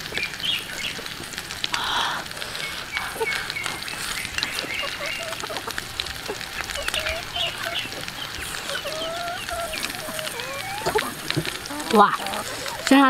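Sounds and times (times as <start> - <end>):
chewing and lip-smacking: 2.3 - 13.0
poultry clucking: 3.2 - 13.0.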